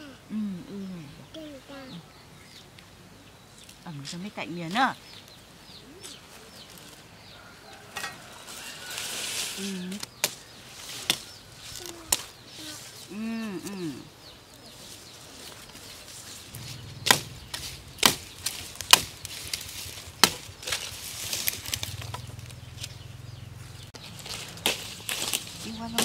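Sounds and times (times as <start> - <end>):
machete cutting sugarcane: 9.9 - 12.3, 16.6 - 22.9, 24.2 - 26.0.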